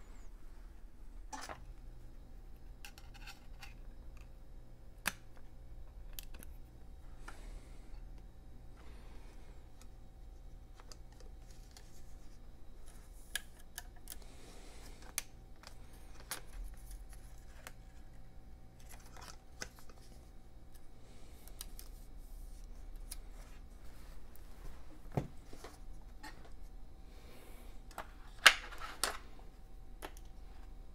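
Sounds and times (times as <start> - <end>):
low steady hum: 0.0 - 30.9
small clicks of laptop parts: 6.0 - 6.5.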